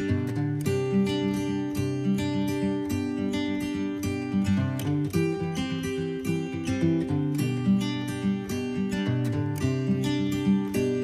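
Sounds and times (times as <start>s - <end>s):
acoustic guitar melody: 0.0s - 11.0s.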